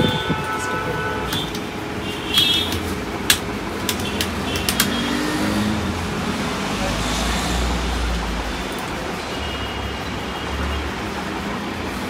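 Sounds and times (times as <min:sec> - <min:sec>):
keyboard and mouse clicks: 0:02.4 - 0:05.2.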